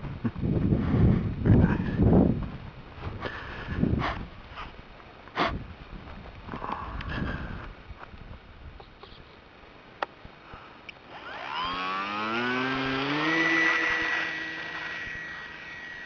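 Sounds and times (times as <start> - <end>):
model airplane motor whine: 10.9 - 16.0.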